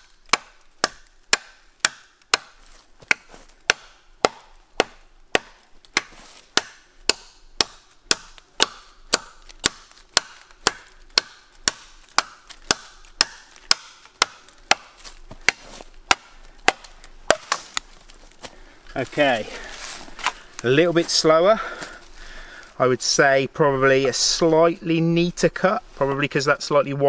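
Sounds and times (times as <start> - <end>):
blade chopping through log: 0.2 - 17.8.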